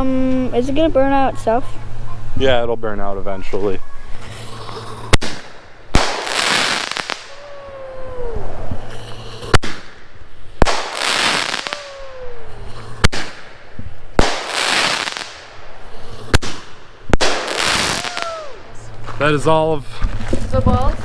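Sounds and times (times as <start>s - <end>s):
crackling hiss: 4.0s - 19.4s
firework bangs: 4.2s - 18.9s
falling tone: 6.0s - 9.5s, 11.0s - 13.0s, 17.5s - 18.9s.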